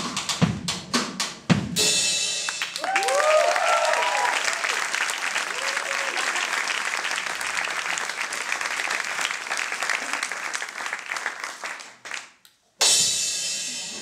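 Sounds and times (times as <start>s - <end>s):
audience applause: 2.6s - 12.4s.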